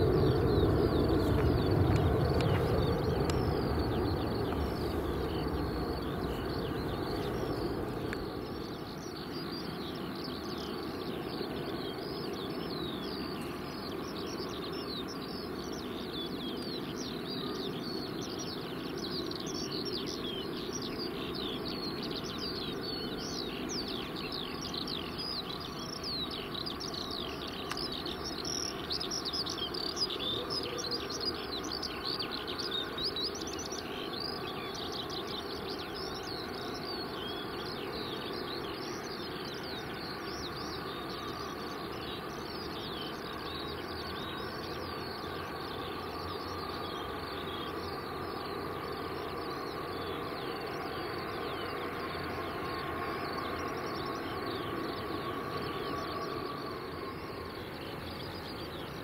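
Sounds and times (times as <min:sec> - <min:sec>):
jet engines rumbling: 0:00.0 - 0:16.1, 0:20.1 - 0:59.0
small birds chirping and singing: 0:00.0 - 0:59.0.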